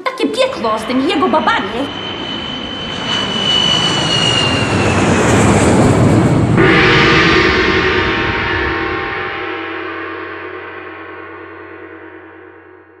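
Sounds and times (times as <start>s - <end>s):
jet-like rush: 0.3s - 10.3s
gong-like ringing chord: 6.6s - 13.0s.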